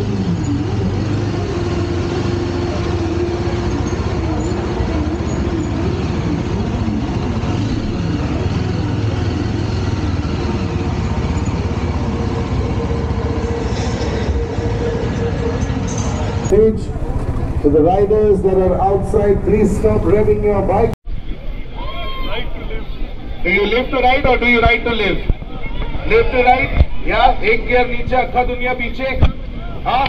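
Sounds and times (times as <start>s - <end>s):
low engine drone: 0.0s - 21.0s
motorcycle engines revving: 0.0s - 21.0s.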